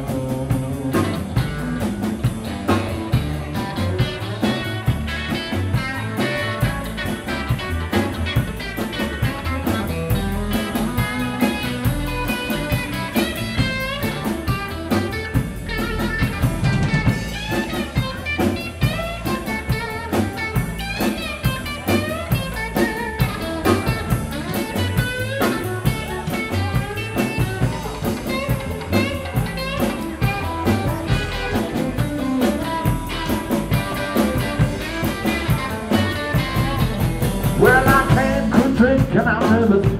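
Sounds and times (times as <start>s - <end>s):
drum kit steady beat: 0.0s - 39.9s
electric guitar: 0.0s - 39.9s
upright bass: 0.0s - 39.9s.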